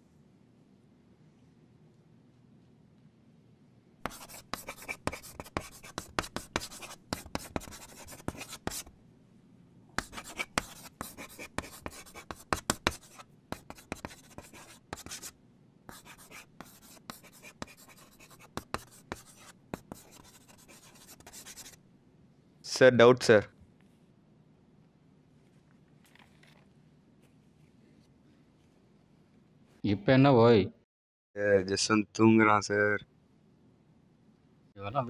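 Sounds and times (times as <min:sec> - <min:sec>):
chalk writing on blackboard: 0:04.0 - 0:08.9, 0:10.0 - 0:15.3, 0:15.9 - 0:21.8.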